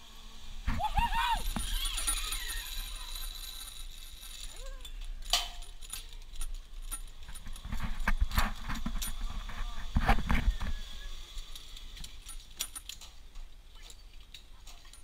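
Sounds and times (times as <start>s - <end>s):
carabiners clinking: 1.2s - 9.3s, 11.3s - 15.0s.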